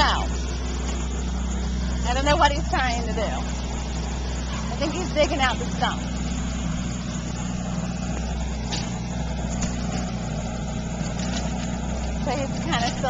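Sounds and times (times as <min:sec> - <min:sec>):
engine humming steadily: 0:00.0 - 0:13.0.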